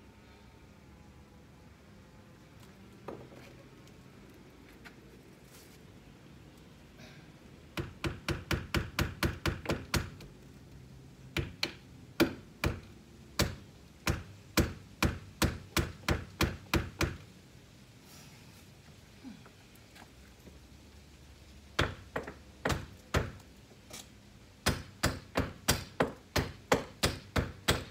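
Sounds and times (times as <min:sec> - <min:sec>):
hammer striking nails: 0:07.8 - 0:10.2, 0:24.6 - 0:27.9.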